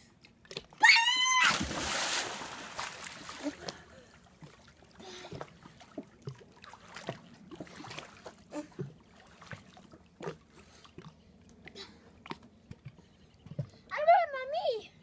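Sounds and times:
pool water splashing: 0.6s - 12.5s.

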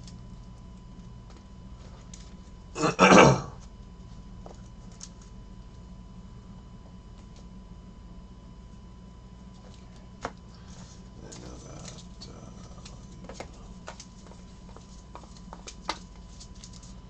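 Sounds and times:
steady low hum: 0.0s - 17.0s
trading cards sliding and flicking: 12.7s - 17.0s.

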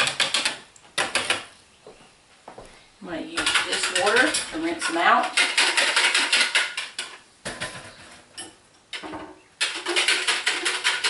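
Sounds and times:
plastic pitchers clattering: 3.4s - 11.0s.

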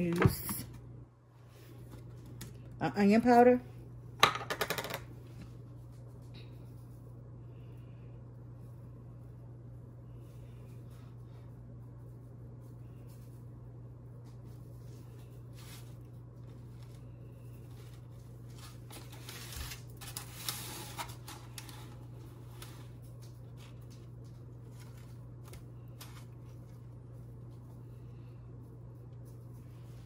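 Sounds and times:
low hum: 5.1s - 30.0s
rustling in foil pan: 17.6s - 26.9s.

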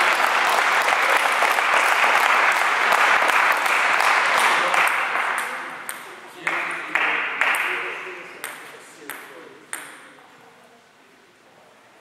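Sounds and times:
spectators clapping: 0.0s - 8.2s.

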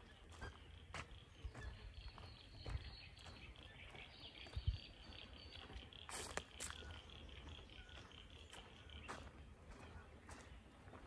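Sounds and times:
low footstep thuds: 0.3s - 4.8s.

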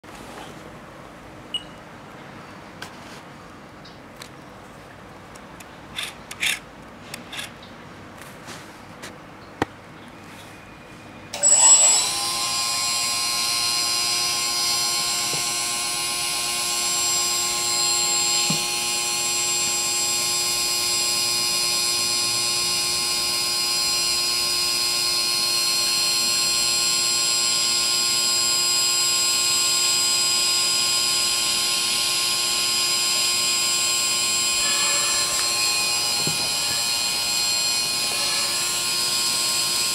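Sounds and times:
small electric pump whining: 11.3s - 39.9s.

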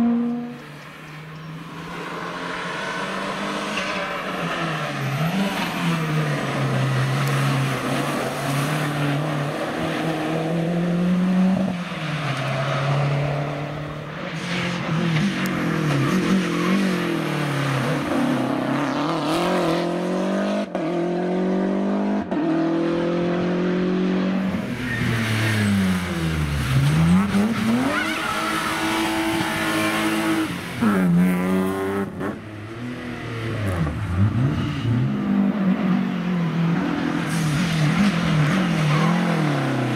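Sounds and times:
rally cars passing: 0.0s - 39.9s
engines revving through gear changes: 14.5s - 36.0s.

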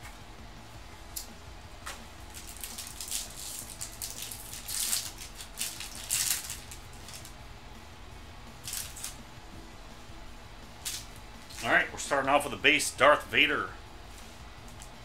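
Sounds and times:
foil wrapper tearing and crinkling: 2.3s - 7.3s, 8.6s - 9.2s, 10.8s - 11.7s.

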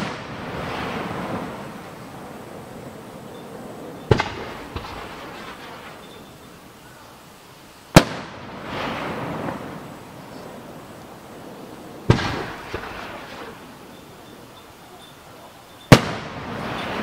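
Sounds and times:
fireworks booming: 0.0s - 17.0s.

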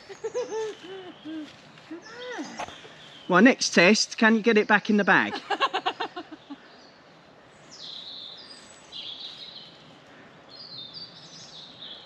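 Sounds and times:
faint outdoor hiss: 0.0s - 12.0s
songbird chirping: 0.0s - 12.0s.

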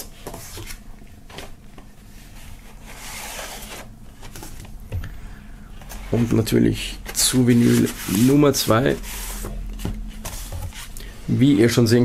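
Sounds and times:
paper sleeves rustling and sliding: 0.2s - 4.7s, 5.8s - 11.0s.

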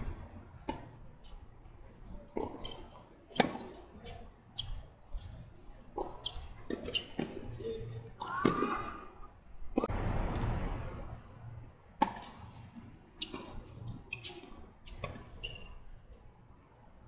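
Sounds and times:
tennis ball bouncing: 0.6s - 1.0s, 2.3s - 4.8s, 12.0s - 15.7s
tennis racket striking ball: 2.4s - 3.8s, 12.0s - 12.4s.

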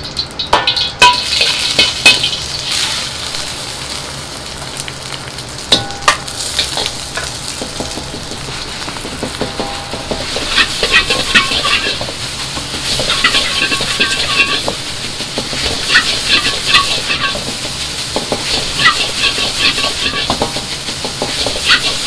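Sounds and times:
egg sizzling in hot oil: 0.0s - 22.0s
metal ladle clanking on pan: 0.4s - 2.4s, 13.0s - 14.8s.

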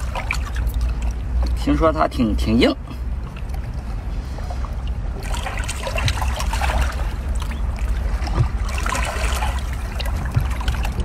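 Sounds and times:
wet squelching and crackling: 0.0s - 1.7s
low rumble: 2.8s - 11.0s.

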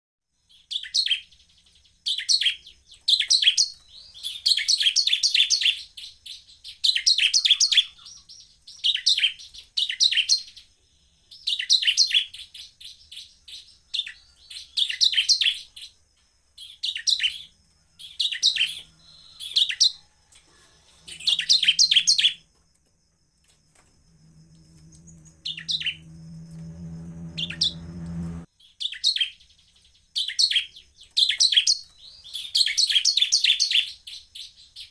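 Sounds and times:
bird chirping in bursts: 0.5s - 20.0s, 20.8s - 22.4s, 24.3s - 34.9s
low hum: 23.7s - 28.5s.

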